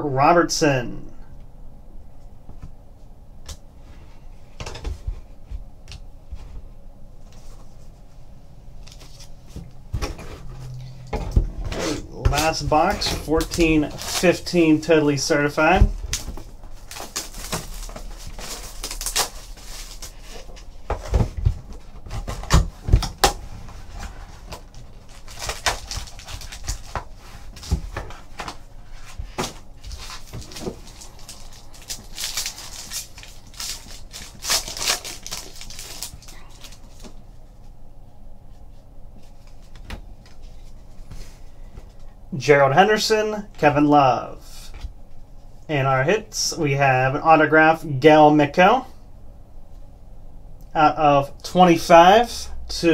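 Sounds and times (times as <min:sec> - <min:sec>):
foil packs rustling: 0:12.1 - 0:37.3
shrink wrap crinkling: 0:12.2 - 0:37.3.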